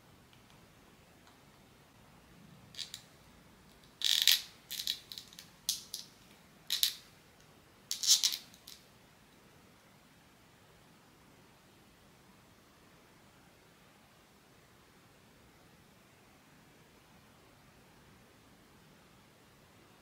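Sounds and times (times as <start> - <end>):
plastic pieces rattling and clicking: 3.8 - 6.1, 6.7 - 7.0, 7.9 - 8.8.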